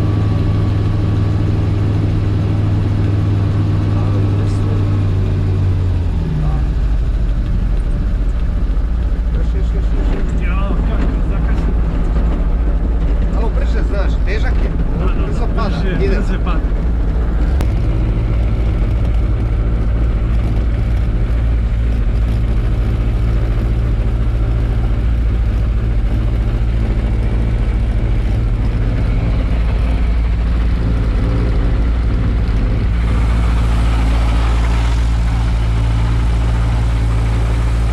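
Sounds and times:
aircraft engine and propeller: 0:00.0 - 0:37.9.

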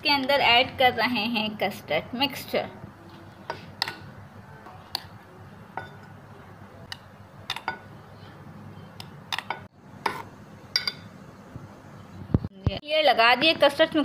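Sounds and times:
metal spoon clinking on dishes: 0:05.7 - 0:06.2, 0:07.5 - 0:07.9, 0:09.3 - 0:11.1.

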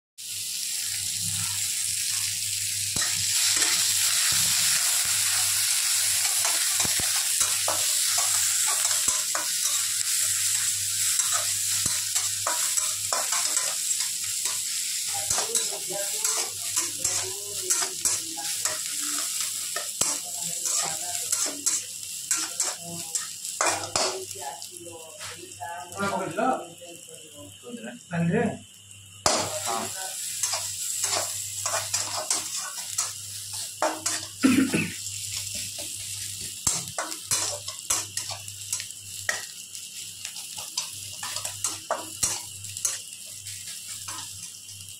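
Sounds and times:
onions sizzling in a wok: 0:00.2 - 0:44.9
metal spatula scraping a pan: 0:03.0 - 0:24.1, 0:29.2 - 0:34.4, 0:35.3 - 0:39.4.

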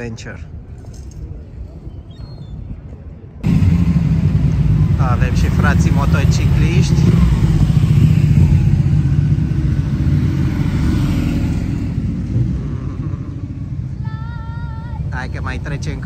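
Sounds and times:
motorcycles passing: 0:03.4 - 0:16.0.

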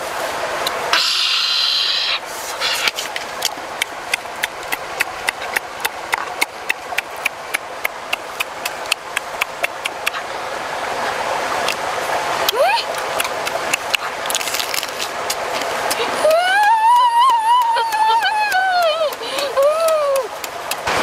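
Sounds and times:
running water rushing: 0:00.0 - 0:21.0
loud high hiss: 0:00.9 - 0:03.0
regular sharp clicks: 0:17.6 - 0:20.9.

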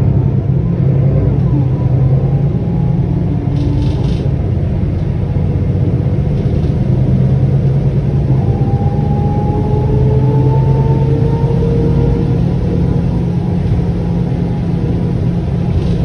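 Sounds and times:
bus diesel engine droning: 0:00.0 - 0:16.0
rising whine: 0:00.0 - 0:16.0.

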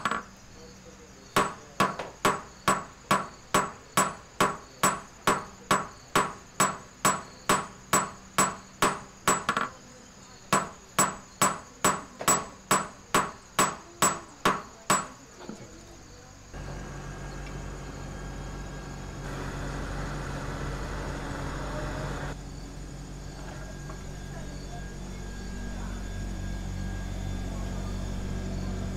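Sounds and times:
small hammer striking metal: 0:01.4 - 0:09.7, 0:10.5 - 0:15.2
gas torch rushing: 0:16.6 - 0:22.4.

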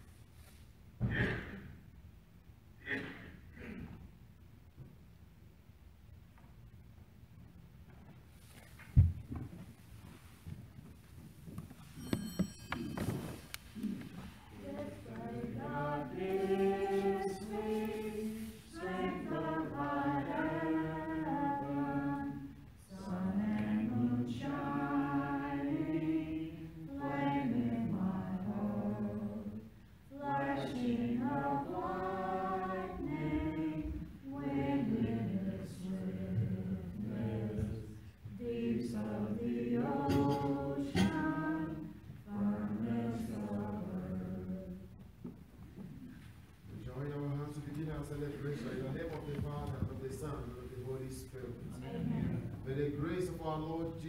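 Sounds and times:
choir singing a hymn: 0:13.3 - 0:45.0, 0:49.8 - 0:54.0.

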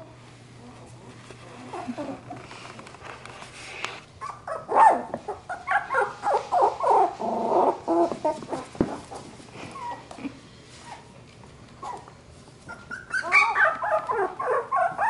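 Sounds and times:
puppies yipping and whining: 0:04.2 - 0:10.2, 0:11.8 - 0:15.0.

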